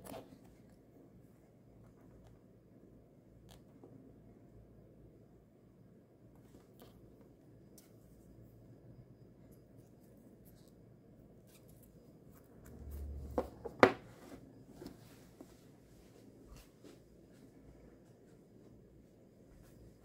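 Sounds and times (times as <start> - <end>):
watch knocking on wooden desk: 13.4 - 14.0.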